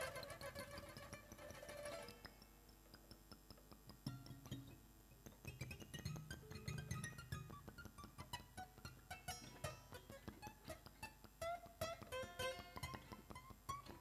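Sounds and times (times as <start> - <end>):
violin: 0.0 - 2.3
taps and clicks: 0.0 - 14.0.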